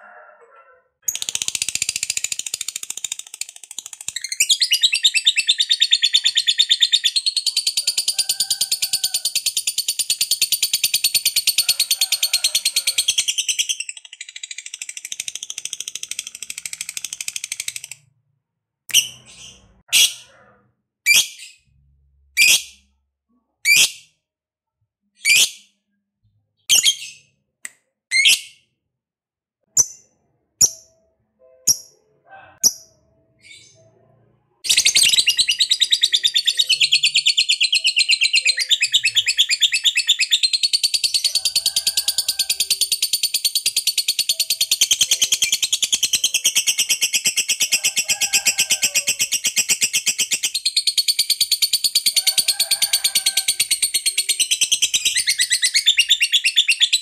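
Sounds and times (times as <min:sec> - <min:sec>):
bird chirping: 0:01.0 - 0:18.0, 0:18.9 - 0:20.5, 0:26.2 - 0:27.3, 0:29.7 - 0:48.2, 0:48.8 - 0:52.8, 0:53.6 - 0:57.0
rapid chattering bird trill: 0:01.1 - 0:18.0, 0:34.6 - 0:57.0.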